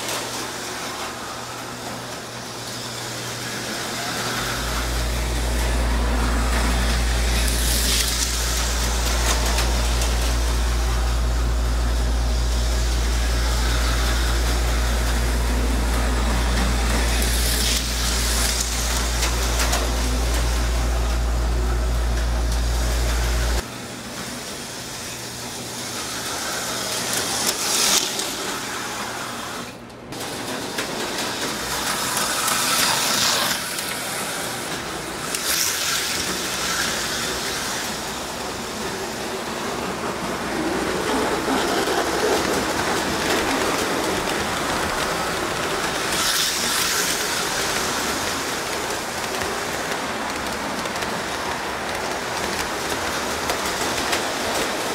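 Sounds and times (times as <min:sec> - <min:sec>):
steady low hum: 0:03.3 - 0:27.7
slot cars racing past: 0:25.6 - 0:54.9.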